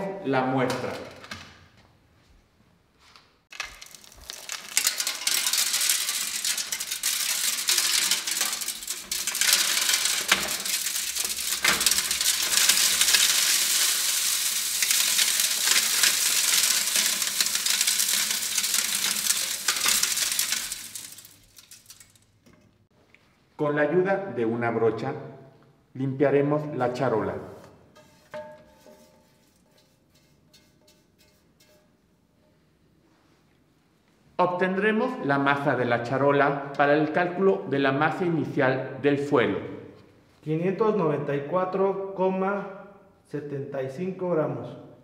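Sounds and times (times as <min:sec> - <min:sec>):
gravel rattling into metal sieves: 0:03.5 - 0:22.4.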